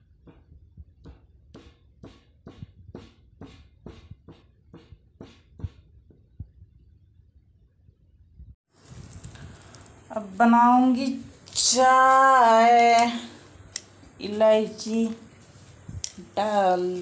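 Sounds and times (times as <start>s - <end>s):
stone pestle pounding in mortar: 0.1s - 6.2s.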